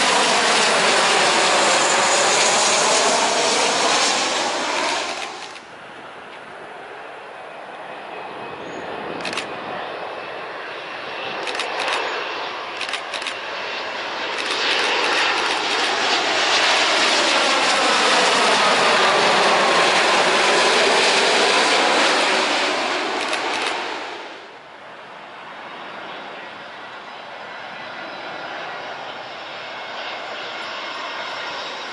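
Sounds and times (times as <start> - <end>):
jet airliner passing overhead: 0.0 - 31.9.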